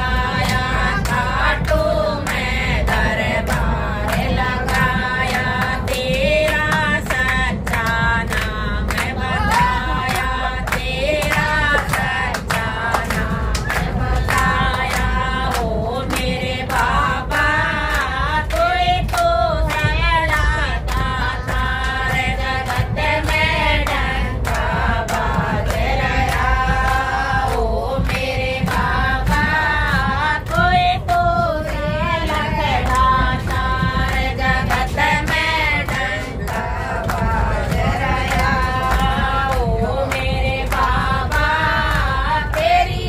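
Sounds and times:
steady beat of sharp strokes: 0.0 - 43.0
women singing together: 0.0 - 43.0.

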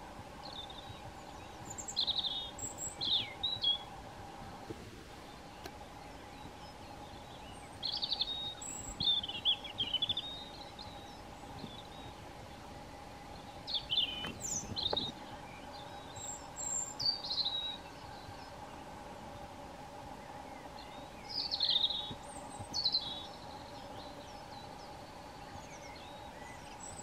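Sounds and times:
faint steady hum: 0.0 - 27.0
robin singing: 0.0 - 27.0.

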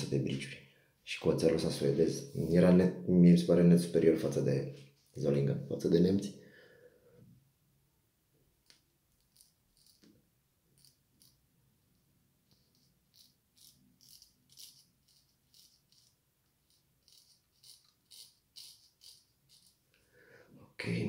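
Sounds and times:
razor scraping stubble: 9.2 - 10.1, 10.8 - 11.4, 12.5 - 19.8.

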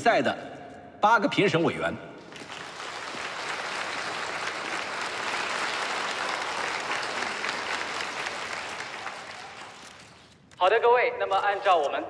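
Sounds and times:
audience applauding: 2.3 - 10.2.

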